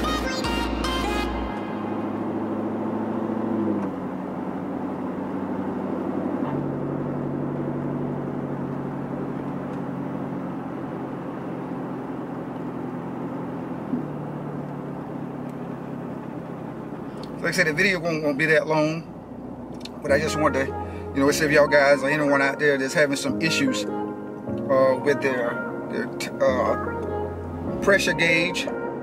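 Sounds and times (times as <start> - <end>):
car engine running at low revs: 0.0 - 29.0
tyre and road noise: 1.6 - 20.9.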